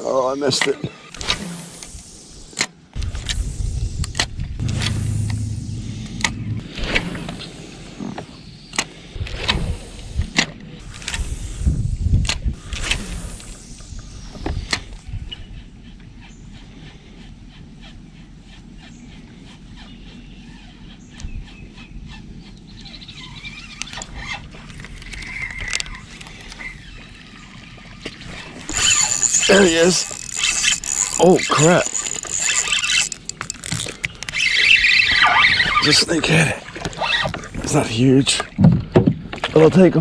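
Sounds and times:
low rumble: 0:01.3 - 0:08.6
fishing reel knocks and clicks: 0:28.7 - 0:35.2.

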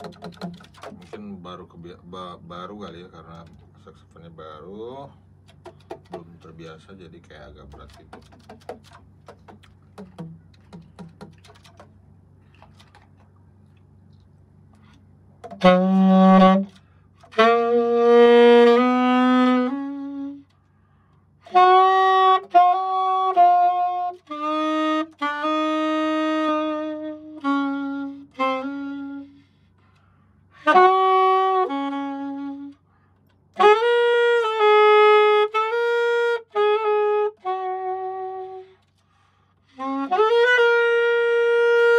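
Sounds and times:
saxophone slow melody: 0:14.1 - 0:20.7, 0:21.4 - 0:41.9.

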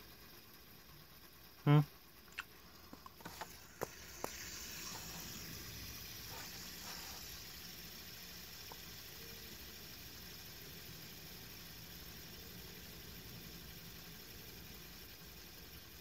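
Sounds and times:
fidget spinner whirring: 0:00.0 - 0:16.0
person humming: 0:01.7 - 0:01.9.

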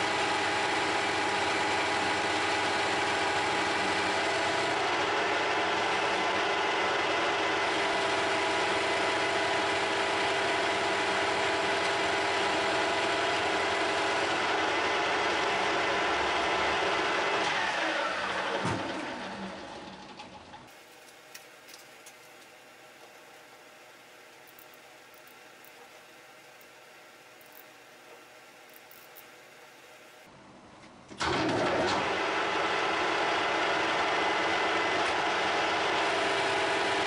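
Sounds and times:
metal lathe humming and whining: 0:00.0 - 0:19.6.

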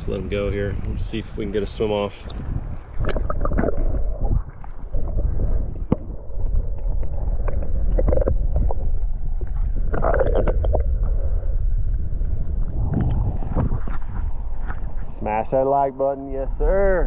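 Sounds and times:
underwater stream rumble: 0:00.0 - 0:17.0
small underwater clicks and knocks: 0:02.2 - 0:11.5.

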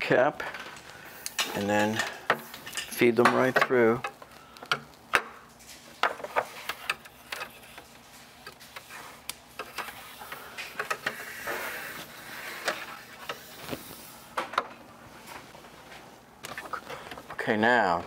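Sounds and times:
plastic tubing sliding and rubbing: 0:08.8 - 0:14.2.

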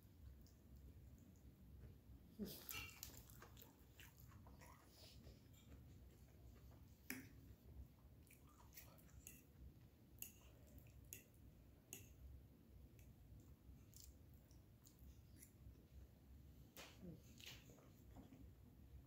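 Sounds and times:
quiet chewing: 0:00.0 - 0:19.0.

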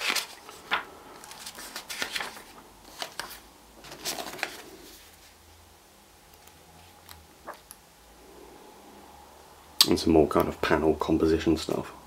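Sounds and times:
book pages turning: 0:00.0 - 0:05.4, 0:06.4 - 0:07.7.

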